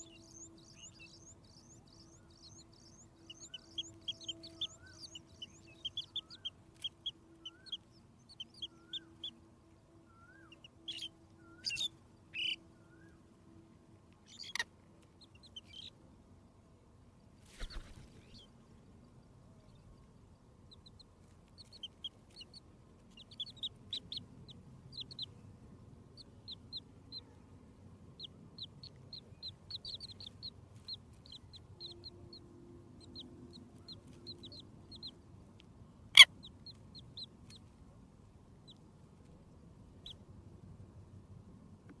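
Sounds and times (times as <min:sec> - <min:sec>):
chicks peeping: 0:00.0 - 0:09.3, 0:10.4 - 0:12.6, 0:14.3 - 0:14.6, 0:20.7 - 0:25.4, 0:28.2 - 0:35.2, 0:36.2 - 0:37.8.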